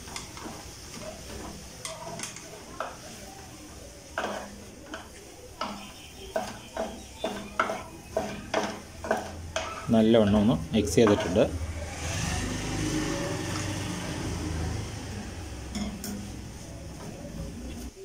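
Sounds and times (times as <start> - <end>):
spatula scraping metal pot: 4.1 - 15.1.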